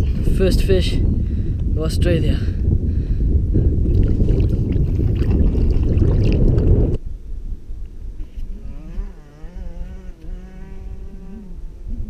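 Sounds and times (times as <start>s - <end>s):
water sloshing and splashing: 3.9s - 6.7s.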